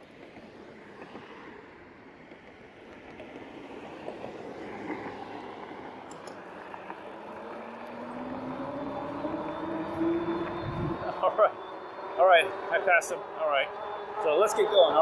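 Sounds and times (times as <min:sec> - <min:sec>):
electric motor whine: 0:06.9 - 0:15.0
wind rush: 0:08.3 - 0:11.2.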